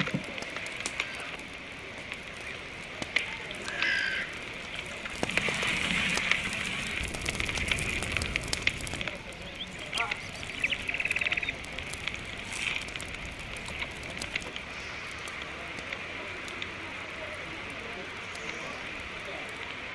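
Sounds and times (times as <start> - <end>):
wood fire crackling and popping: 0.0 - 19.9
bird calls: 3.6 - 4.5, 9.4 - 11.7.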